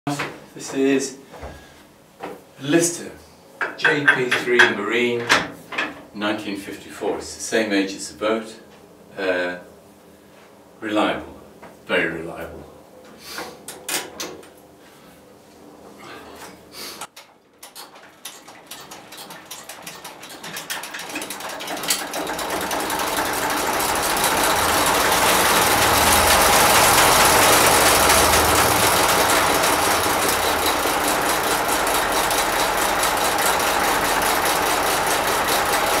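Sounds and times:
diesel engine being hand started: 17.1s - 36.0s
rhythmic ticking: 21.6s - 36.0s
diesel engine running steadily: 22.2s - 36.0s.

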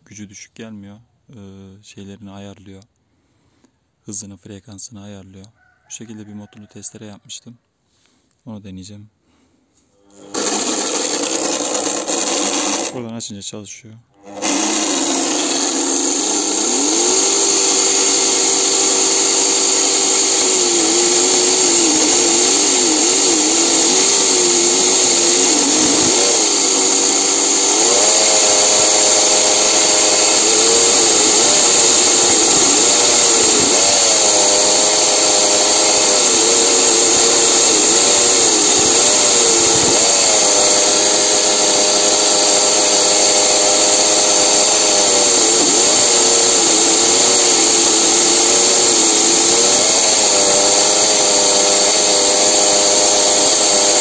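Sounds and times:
electric motor driving chainsaw chain: 10.0s - 13.0s, 14.2s - 54.0s.

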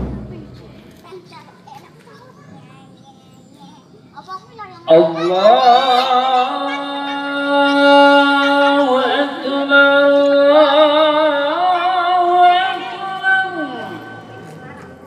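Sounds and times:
man singing call to prayer: 4.9s - 14.7s.

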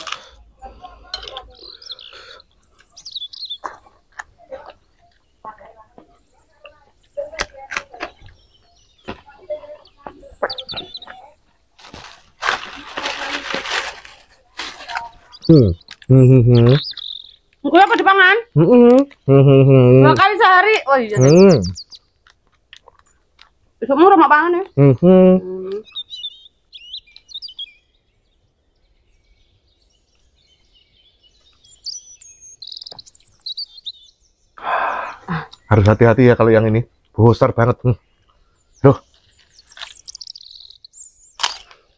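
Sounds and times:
bird chirps: 0.0s - 41.9s
plastic bag crinkling: 11.8s - 15.4s.

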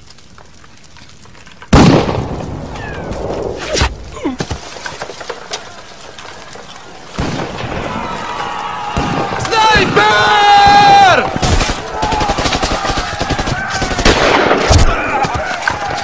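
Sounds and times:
gunshot cracks: 1.7s - 2.4s, 14.0s - 15.0s.

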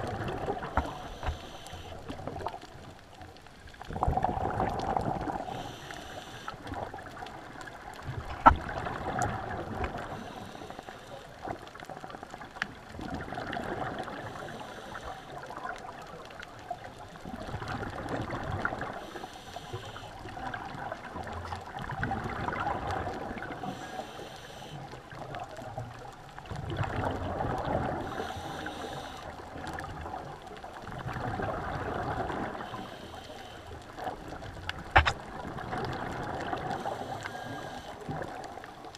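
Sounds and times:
exhaled air bubbling: 0.0s - 2.8s, 3.7s - 38.9s
regulator hiss on inhale: 0.6s - 2.3s, 5.3s - 6.9s, 10.0s - 11.6s, 14.1s - 15.7s, 18.8s - 20.4s, 23.5s - 25.2s, 27.9s - 29.6s, 32.5s - 34.4s, 36.6s - 38.9s.

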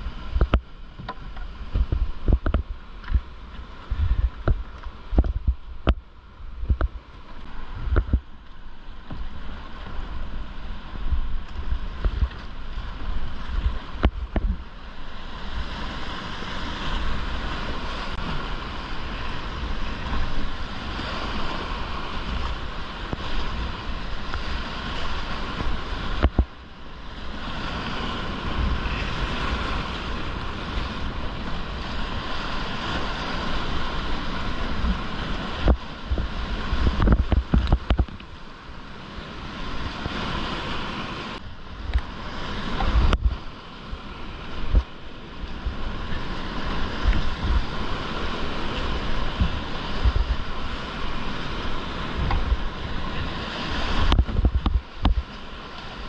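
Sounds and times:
wind buffeting microphone: 0.0s - 56.0s
whitewater rapids rushing: 38.4s - 56.0s.

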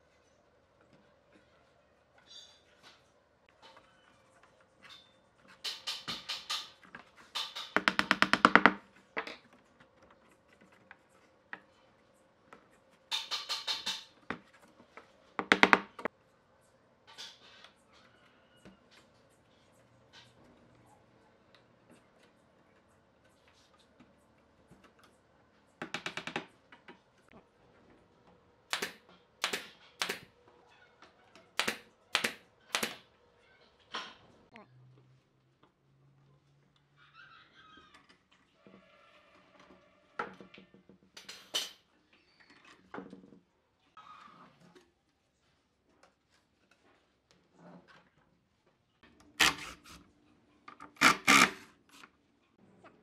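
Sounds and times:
wooden strips clacking: 13.1s - 14.4s
nail gun firing: 28.7s - 30.3s, 31.6s - 33.0s, 49.4s - 49.8s, 51.0s - 51.6s.

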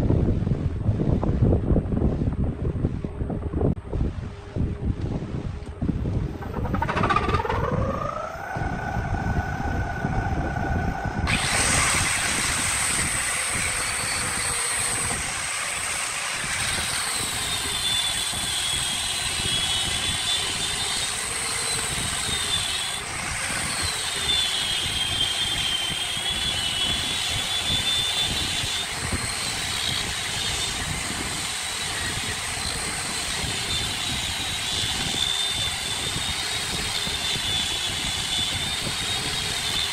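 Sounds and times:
power motor whine: 5.6s - 39.9s
angle grinder sanding wood: 6.4s - 39.9s.

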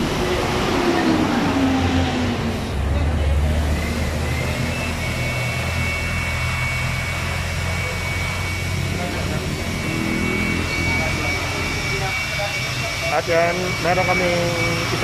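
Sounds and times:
high steady whine: 0.0s - 15.0s
motor humming: 0.0s - 15.0s.

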